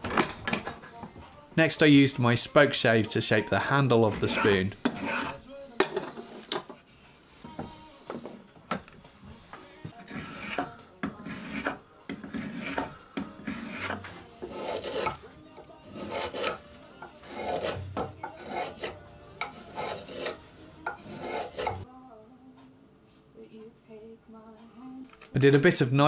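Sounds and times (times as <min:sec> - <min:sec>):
spokeshave shaving wood: 0:04.0 - 0:05.4, 0:09.9 - 0:21.8.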